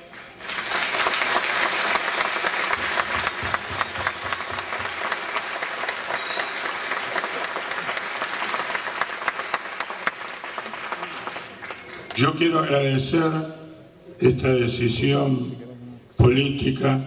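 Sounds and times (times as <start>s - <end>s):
audience applauding: 0.0s - 12.4s.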